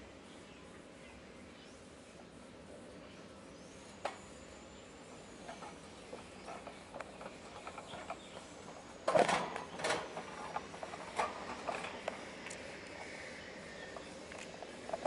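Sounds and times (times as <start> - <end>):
wire cage rattle: 9.1 - 12.0.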